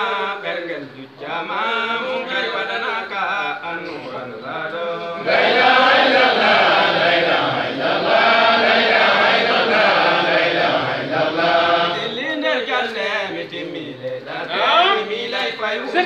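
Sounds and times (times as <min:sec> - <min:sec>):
men chanting together: 0:05.0 - 0:12.2.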